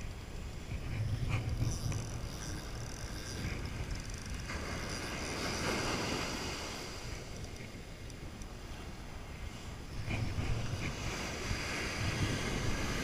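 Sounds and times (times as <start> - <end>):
wind buffeting microphone: 0.0 - 13.0
surf washing on beach: 4.4 - 13.0.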